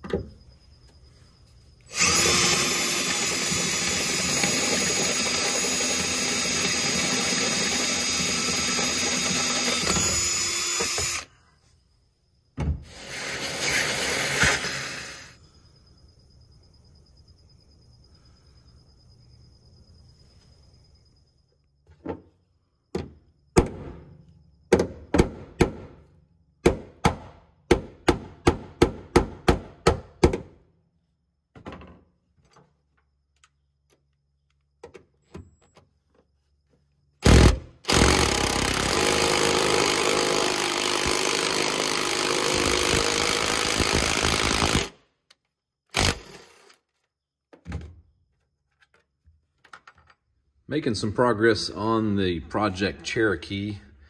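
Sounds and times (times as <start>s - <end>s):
power tool running: 1.9s - 11.3s, 12.9s - 15.3s, 37.2s - 44.9s, 45.9s - 46.8s.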